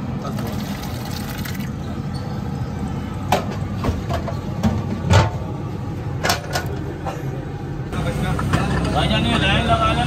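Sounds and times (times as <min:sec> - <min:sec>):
street noise: 0:00.0 - 0:10.0.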